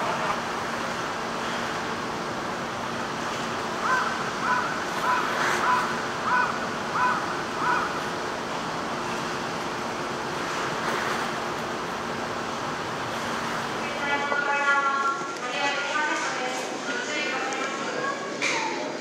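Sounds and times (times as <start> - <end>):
wind and sea rushing: 0.0 - 15.4
crow cawing: 3.8 - 8.0.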